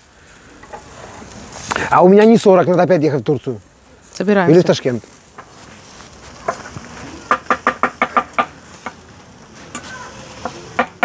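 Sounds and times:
sharp knocks: 0:07.3 - 0:09.0.

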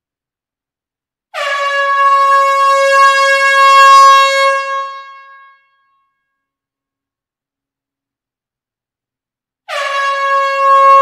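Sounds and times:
air horn blast: 0:09.7 - 0:11.0.

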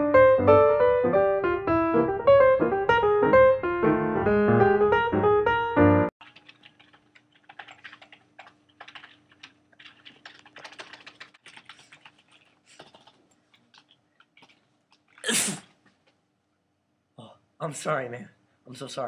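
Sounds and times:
computer keyboard typing: 0:06.2 - 0:15.2
person sneezing: 0:15.2 - 0:15.8.

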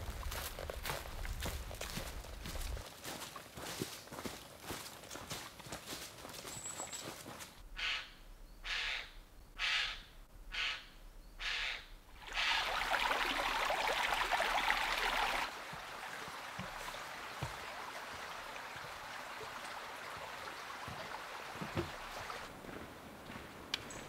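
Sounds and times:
footsteps on wooden footbridge: 0:00.0 - 0:07.6, 0:16.5 - 0:19.1, 0:20.1 - 0:24.0
stream running: 0:00.0 - 0:07.6, 0:12.1 - 0:24.0.

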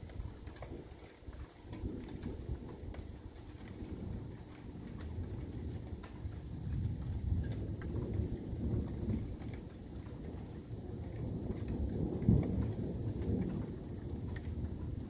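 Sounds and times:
rain ticking: 0:00.0 - 0:15.0
thunder rumbling: 0:00.0 - 0:15.0.

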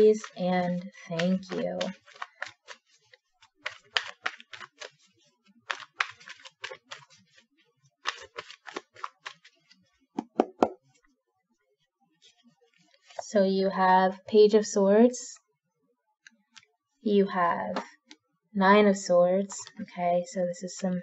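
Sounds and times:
cards slapping: 0:00.0 - 0:05.1, 0:05.7 - 0:07.4, 0:08.0 - 0:10.8
cards being shuffled: 0:00.0 - 0:10.8.

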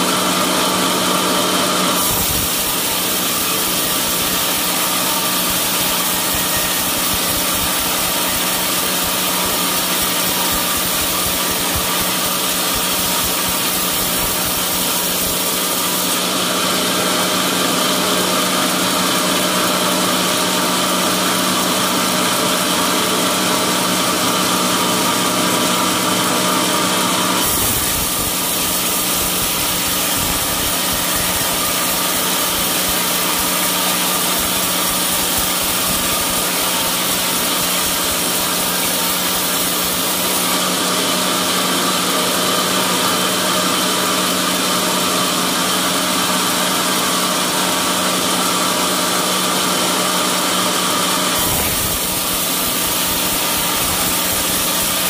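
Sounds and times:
band saw machine drone: 0:00.0 - 0:55.0
saw blade hissing in wood: 0:01.7 - 0:20.2, 0:26.1 - 0:43.2, 0:51.0 - 0:55.0.

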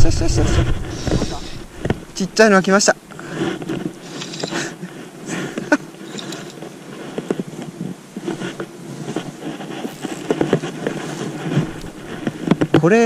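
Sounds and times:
sleeve rubbing on microphone: 0:00.0 - 0:13.0
fly line stripped by hand: 0:05.5 - 0:12.9.

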